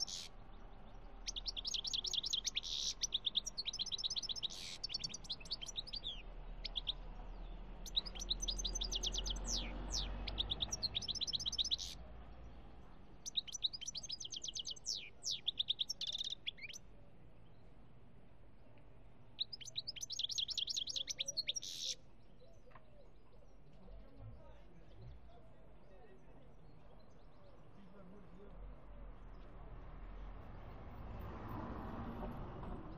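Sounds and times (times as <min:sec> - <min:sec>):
goldfinch singing: 0:00.0 - 0:12.0, 0:13.2 - 0:16.8, 0:19.4 - 0:22.7.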